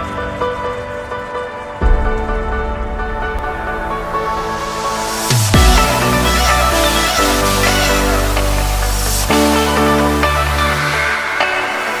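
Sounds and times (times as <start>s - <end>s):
deep bass hit: 1.8s - 9.3s.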